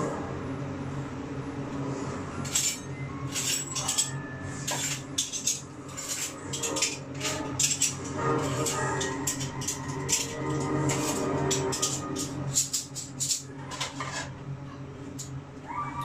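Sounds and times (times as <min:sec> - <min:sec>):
steady low hum: 0:00.0 - 0:16.0
kitchenware clinking: 0:02.4 - 0:14.3.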